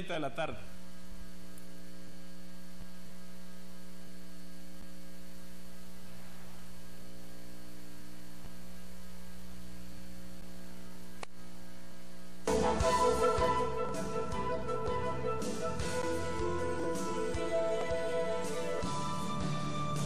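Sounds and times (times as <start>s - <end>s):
electrical mains hum: 0.0s - 20.0s
faint click: 11.2s - 11.4s.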